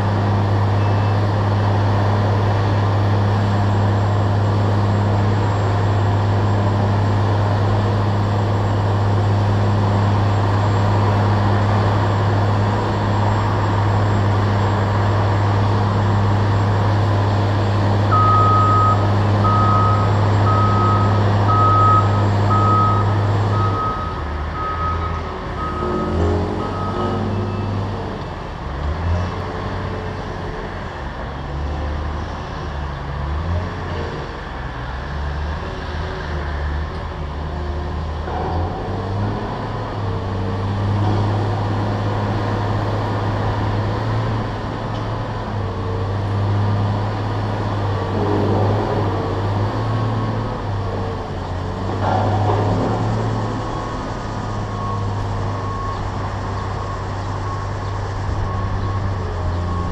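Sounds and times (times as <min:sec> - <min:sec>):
heavy machinery engine humming: 0:00.0 - 0:59.9
truck reversing alarm beeping: 0:18.0 - 0:28.0, 0:49.4 - 0:59.9.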